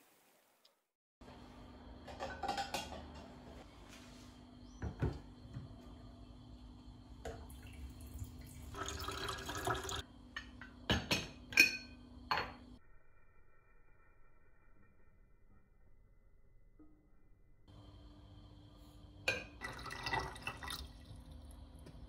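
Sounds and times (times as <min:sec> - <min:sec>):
tap water running: 0:07.2 - 0:10.0, 0:19.6 - 0:22.0.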